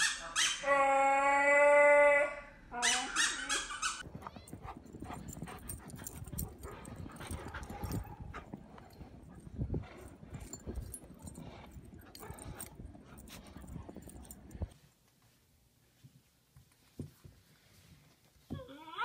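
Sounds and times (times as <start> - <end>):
faint dog whine: 18.5 - 19.0.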